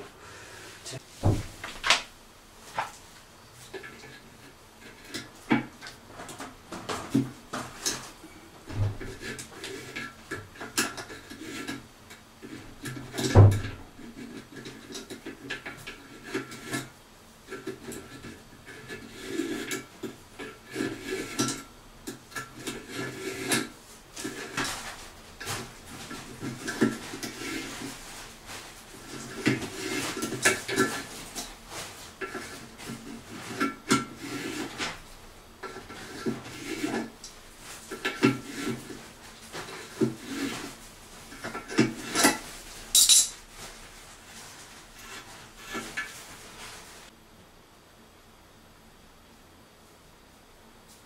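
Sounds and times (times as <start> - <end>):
wrench scraping metal drain: 9.0 - 16.9, 17.5 - 28.0, 28.9 - 31.5, 32.2 - 35.0, 35.6 - 39.0, 39.6 - 42.4.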